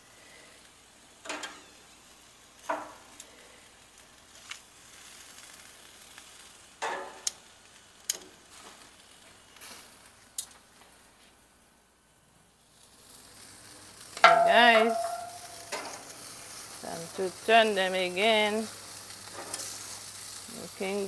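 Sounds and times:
chicken wings sizzling on a grill: 0.0 - 21.0
clicks and clanks on grill grate: 1.2 - 1.8, 2.6 - 3.3, 4.2 - 11.0, 13.3 - 21.0.

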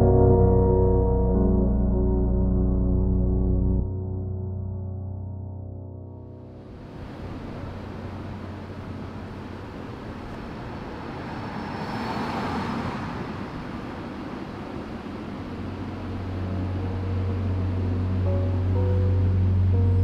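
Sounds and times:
vehicle passing: 6.6 - 19.0
street traffic noise: 6.6 - 20.0
low steady hum: 13.8 - 20.0.

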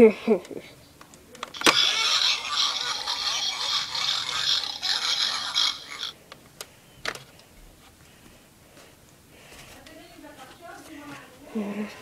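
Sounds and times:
rustling and scraping handling noise: 7.1 - 11.5.

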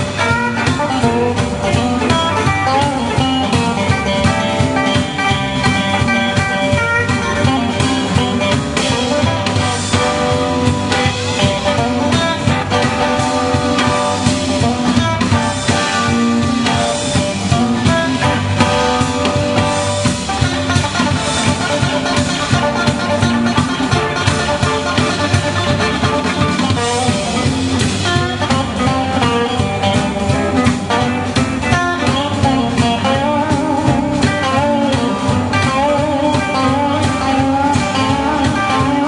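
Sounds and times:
bass guitar: 0.0 - 39.0
drum kit beat: 0.0 - 39.0
electric guitars: 0.0 - 39.0.

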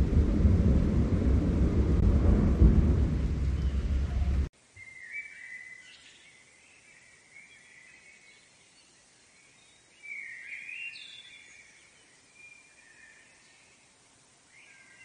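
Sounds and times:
deep rumbling noise: 0.0 - 4.5
forest ambience: 0.0 - 15.0.

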